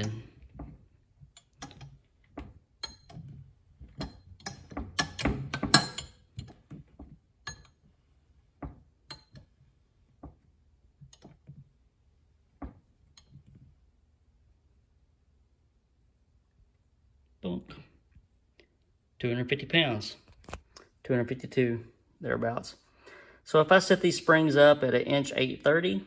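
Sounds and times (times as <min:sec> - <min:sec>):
metallic clicks and clinks: 0:02.8 - 0:03.3, 0:03.9 - 0:06.7, 0:07.4 - 0:07.8.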